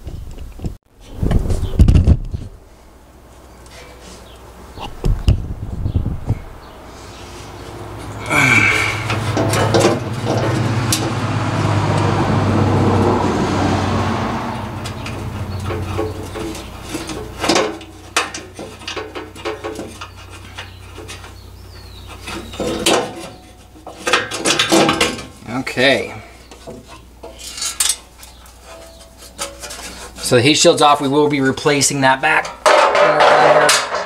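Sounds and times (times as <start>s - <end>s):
sheet metal clicks and rattles: 9.1s - 11.2s, 14.8s - 21.3s, 22.2s - 25.4s, 32.4s - 34.0s.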